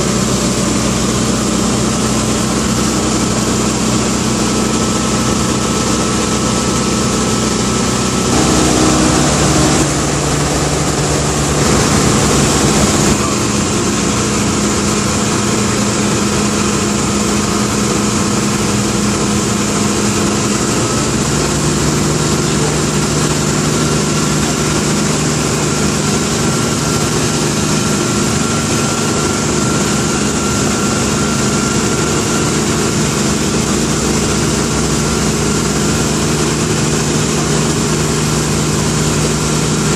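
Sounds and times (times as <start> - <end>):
airplane engine and propeller droning: 0.0 - 39.9.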